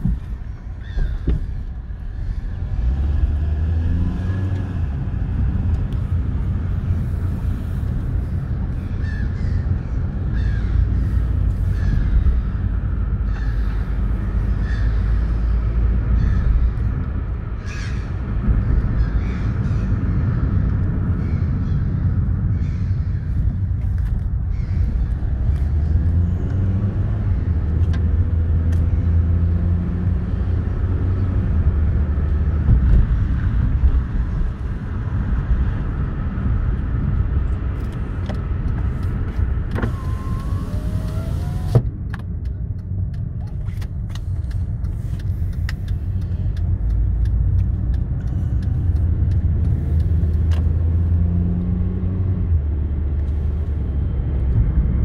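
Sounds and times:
car engine and road rumble: 0:00.0 - 0:55.0
faint clicks: 0:42.0 - 0:50.7.

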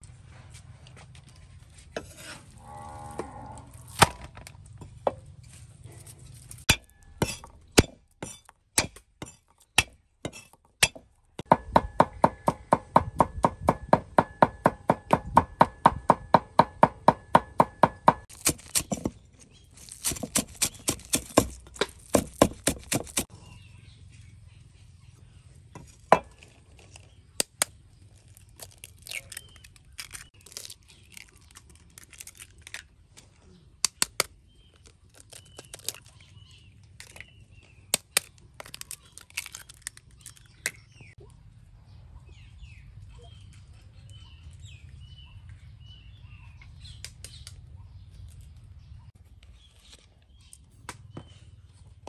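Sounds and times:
cleaver chopping on wooden board: 0:06.7 - 0:10.0, 0:10.8 - 0:19.1, 0:20.0 - 0:23.3.

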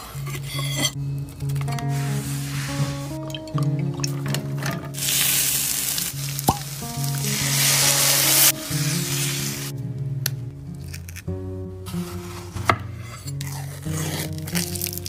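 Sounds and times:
background music sustained notes: 0:00.0 - 0:15.0
onions sizzling in a pan: 0:05.0 - 0:09.7.

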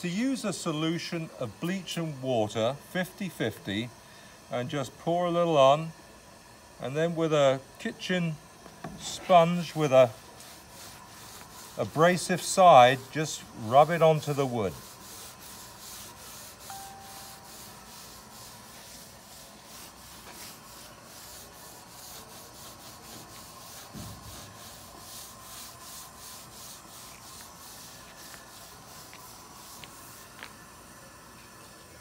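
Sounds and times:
sponge scrubbing wet wood: 0:08.9 - 0:30.7.

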